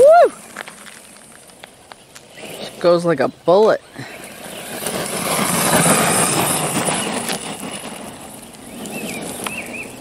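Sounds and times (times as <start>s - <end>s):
tyres on gravel: 0.0s - 10.0s
rc truck motor: 0.4s - 10.0s.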